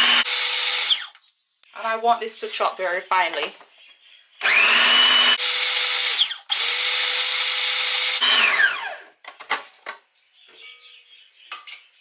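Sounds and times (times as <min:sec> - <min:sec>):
food processor motor whirring: 0:00.0 - 0:01.1, 0:04.4 - 0:09.1.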